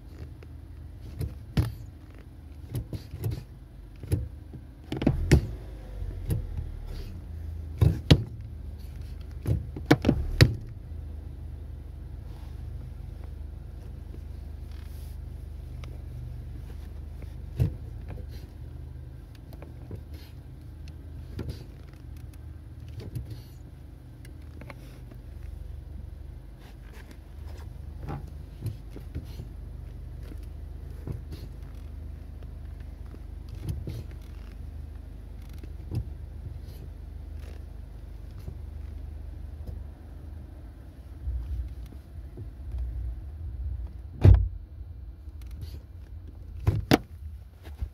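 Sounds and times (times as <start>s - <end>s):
car engine idling: 0.0s - 47.9s.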